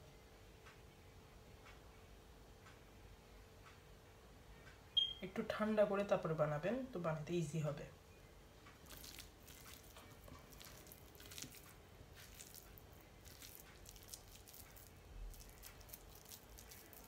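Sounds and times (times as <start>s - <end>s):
squishing of moist mixture by hand: 8.7s - 17.0s.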